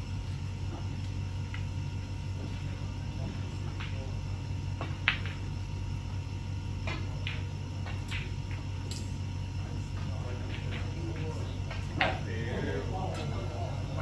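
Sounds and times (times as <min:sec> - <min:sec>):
steady low hum: 0:00.0 - 0:14.0
snooker balls clicking: 0:03.7 - 0:04.1, 0:04.8 - 0:05.6, 0:06.8 - 0:09.1, 0:10.0 - 0:12.2.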